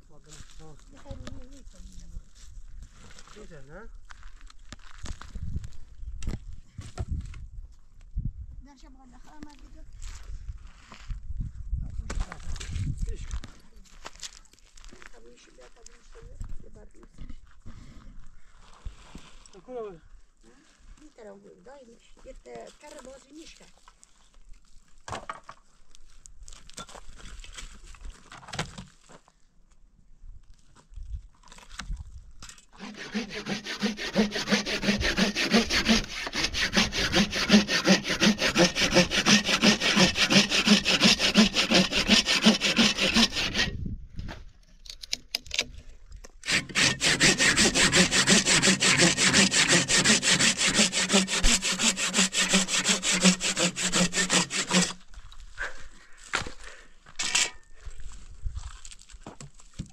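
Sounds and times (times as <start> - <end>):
hand saw cutting wood: 32.7 - 43.8, 46.4 - 55.0, 57.2 - 57.6.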